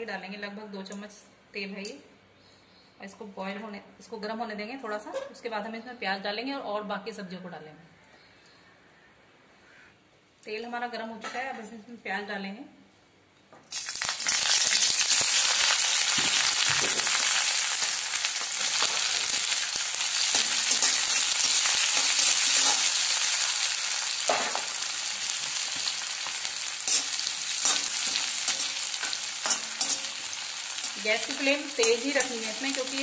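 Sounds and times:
onions sizzling in hot oil: 13.7s - 33.0s
metal spatula scraping pan: 20.2s - 23.2s, 26.8s - 33.0s.

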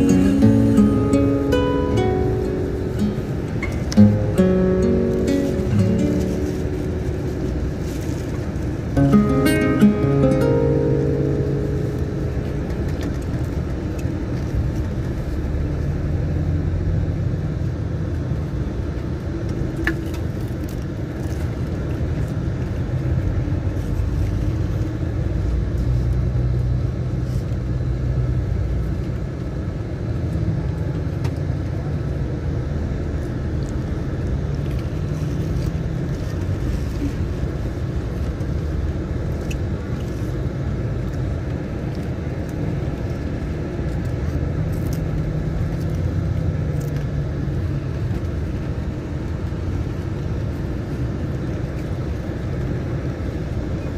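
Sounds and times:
car engine and road rumble: 0.0s - 53.9s.

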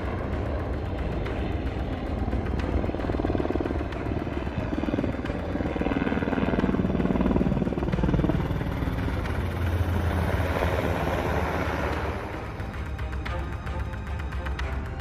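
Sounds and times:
deep helicopter engine drone: 0.0s - 15.0s
helicopter rotor chopping: 0.0s - 15.0s.

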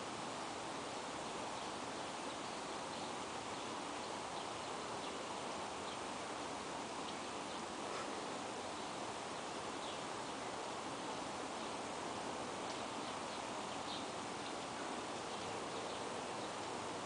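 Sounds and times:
outdoor background hiss: 0.0s - 17.0s.

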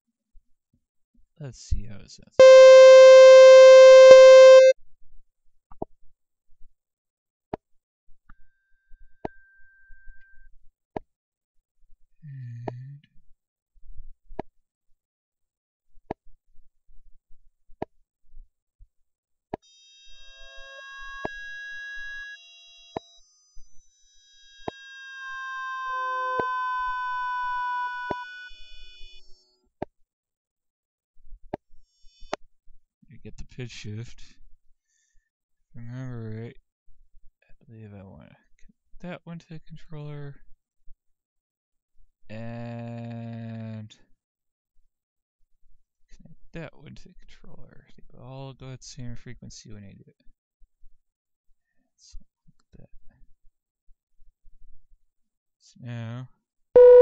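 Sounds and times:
sharp loop click: 2.4s - 4.7s
faint thin high tone: 2.4s - 4.8s, 24.7s - 29.2s, 56.8s - 57.0s
organ-like synthesizer note: 2.4s - 4.8s, 56.8s - 57.0s.

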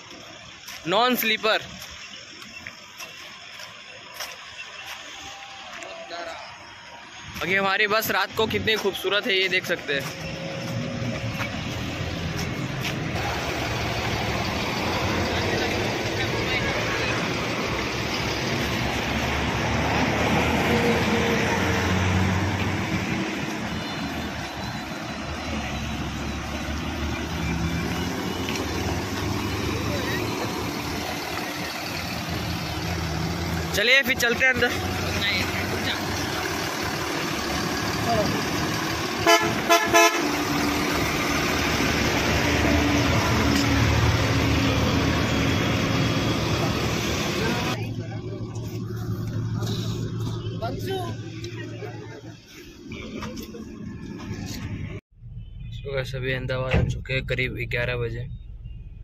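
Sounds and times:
diesel engine idling: 0.0s - 5.2s, 6.1s - 55.0s
bus horn blasts: 39.1s - 41.3s.

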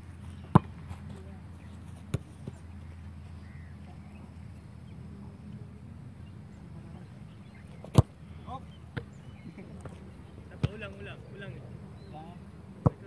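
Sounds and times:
faint bird chirps: 2.5s - 5.0s, 6.2s - 10.5s.

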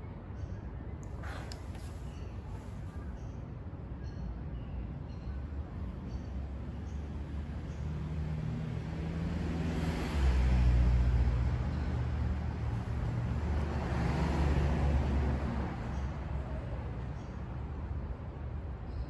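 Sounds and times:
passing vehicle engine rumble: 1.0s - 3.4s, 7.3s - 18.9s.

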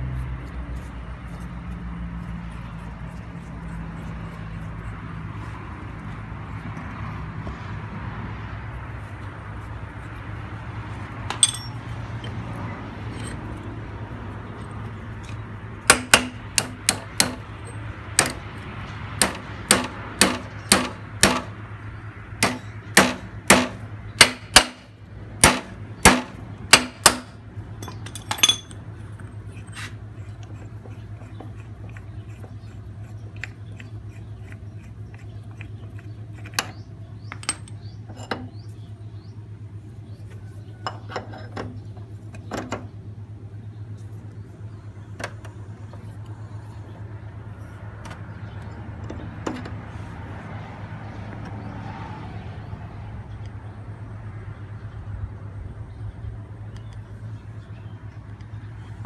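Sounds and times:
light metal clinks: 11.3s - 12.4s, 13.1s - 13.7s, 27.8s - 29.8s.

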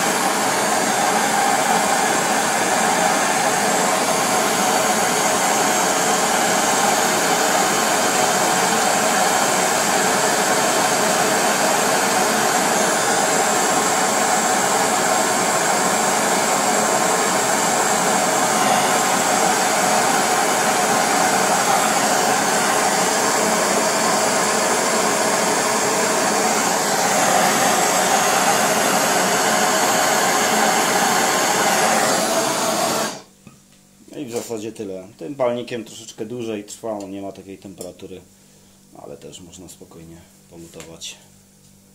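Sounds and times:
gas torch flame hissing: 0.0s - 33.3s.

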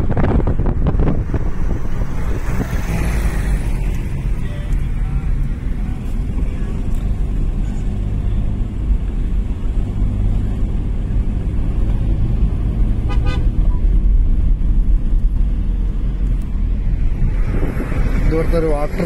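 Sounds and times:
car cabin engine and tyre rumble: 0.0s - 19.0s
vehicle horn toot: 13.0s - 13.6s.

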